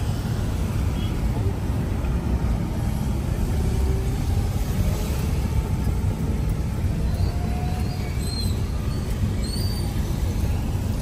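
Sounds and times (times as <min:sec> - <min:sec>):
car engine and road rumble: 0:00.0 - 0:11.0
tyres on wet road: 0:00.0 - 0:11.0.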